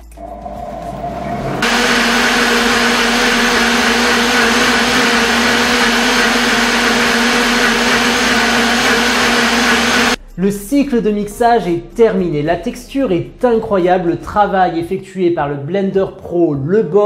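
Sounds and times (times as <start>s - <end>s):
blender motor humming: 0.0s - 10.2s.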